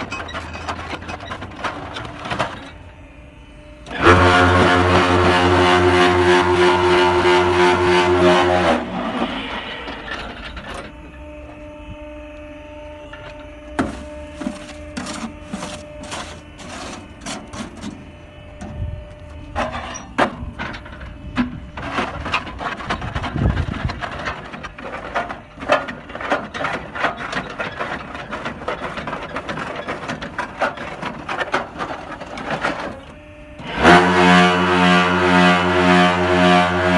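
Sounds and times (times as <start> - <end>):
metallic clanking and knocking: 0.0 - 2.8, 19.6 - 33.1
loud even droning hum: 0.0 - 36.9
motor hum: 0.0 - 36.9.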